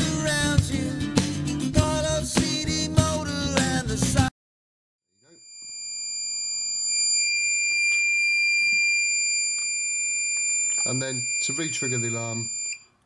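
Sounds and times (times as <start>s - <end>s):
music: 0.0s - 4.3s
high-pitched buzzer tone: 5.2s - 12.9s.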